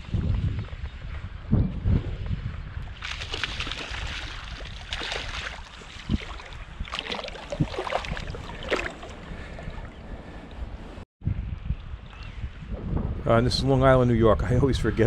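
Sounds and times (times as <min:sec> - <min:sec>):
low wind rumble: 0:00.0 - 0:15.0
fish splashing in water: 0:03.0 - 0:09.2.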